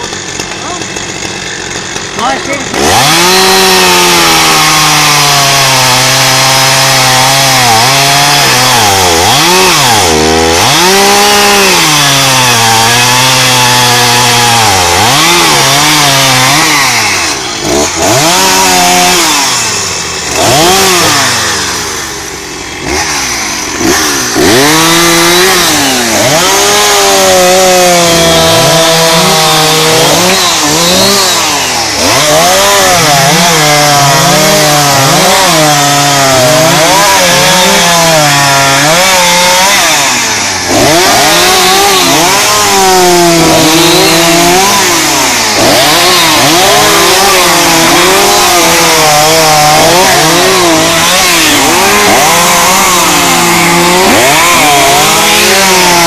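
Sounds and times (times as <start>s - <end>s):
chainsaw revving and cutting: 0.0s - 56.0s.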